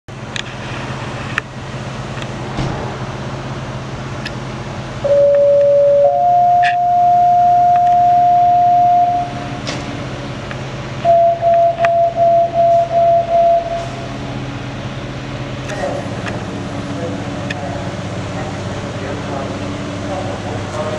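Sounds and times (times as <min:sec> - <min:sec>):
low engine hum: 0:00.1 - 0:20.9
two-tone pager tone over radio: 0:05.1 - 0:09.3.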